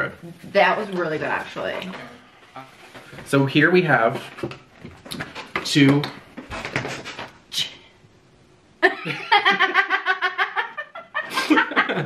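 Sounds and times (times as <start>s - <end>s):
man laughing: 8.8s - 12.0s
woman laughing: 8.8s - 12.0s.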